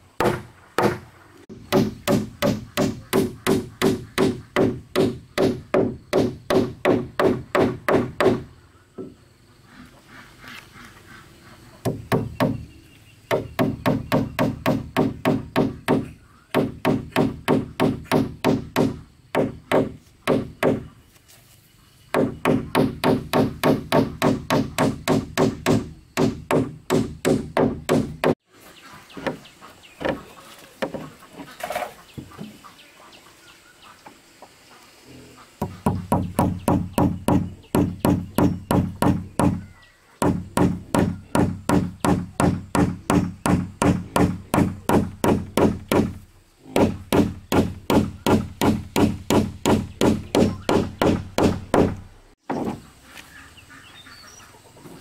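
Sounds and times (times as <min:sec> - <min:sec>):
hammer blows on wooden hull: 0:00.2 - 0:08.4, 0:13.3 - 0:20.8, 0:35.6 - 0:52.0.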